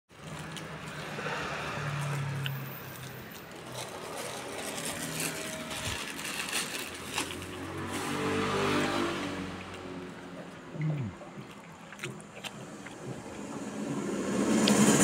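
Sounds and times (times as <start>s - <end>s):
crackers crackling: 0.1s - 8.0s
plastic bag crinkling: 2.8s - 8.4s.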